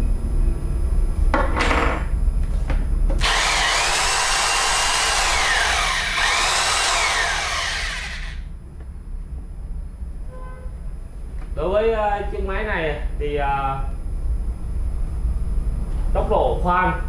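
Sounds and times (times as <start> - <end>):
hammer drill whining: 3.2 - 8.4.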